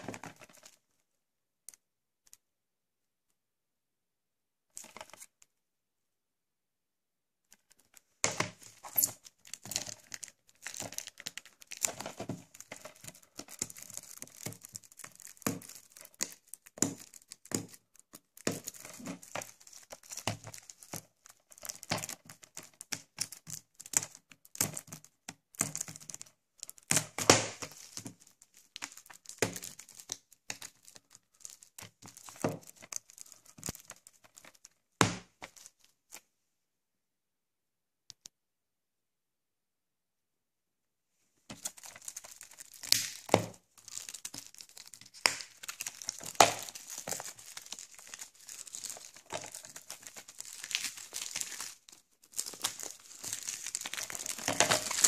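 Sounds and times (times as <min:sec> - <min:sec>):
plastic wrap crinkling: 0:07.5 - 0:36.3, 0:41.4 - 0:55.0.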